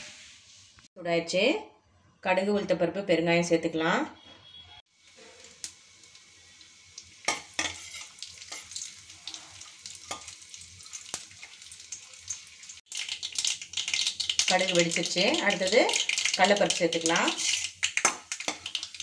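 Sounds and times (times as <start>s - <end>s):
spices sizzling in hot oil: 4.9s - 19.0s
mustard seeds popping: 15.9s - 19.0s.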